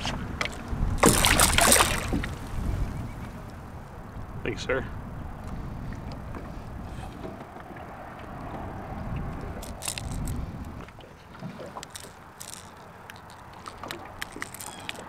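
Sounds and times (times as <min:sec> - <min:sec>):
water rumble and movement: 0:00.0 - 0:15.0
hooks and net frame clicking: 0:00.4 - 0:02.3, 0:09.6 - 0:10.4, 0:11.6 - 0:15.0.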